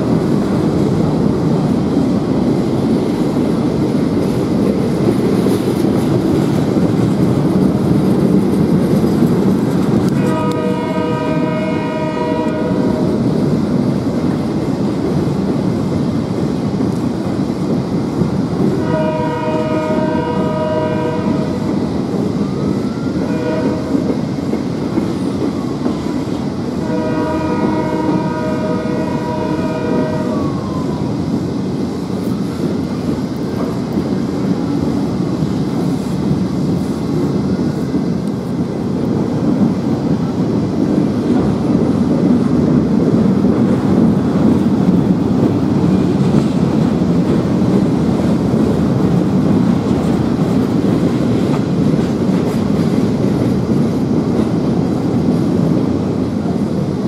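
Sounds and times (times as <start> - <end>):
freight train rumble and wheel clatter: 0.0 - 57.0
locomotive horn blast: 10.1 - 13.1, 18.8 - 21.6, 23.2 - 24.1, 26.8 - 30.5.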